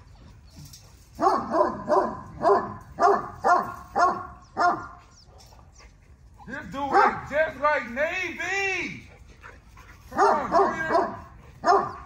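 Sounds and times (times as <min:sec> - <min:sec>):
dog barking sharply: 0:01.2 - 0:05.0, 0:10.2 - 0:12.0.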